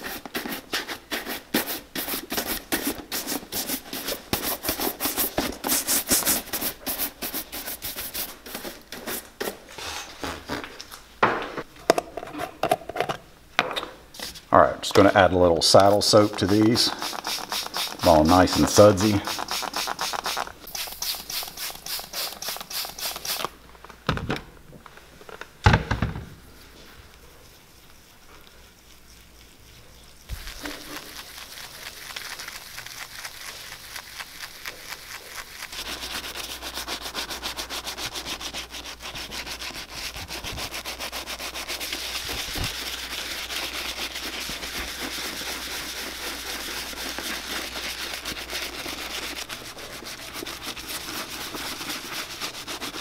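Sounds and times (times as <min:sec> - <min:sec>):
brush scrubbing leather: 0:00.0 - 0:09.6, 0:15.1 - 0:23.5, 0:27.2 - 0:53.0.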